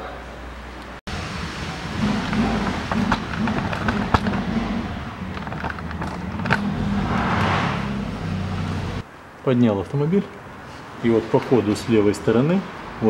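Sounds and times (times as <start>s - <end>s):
car lift motor humming: 1.1s - 9.0s.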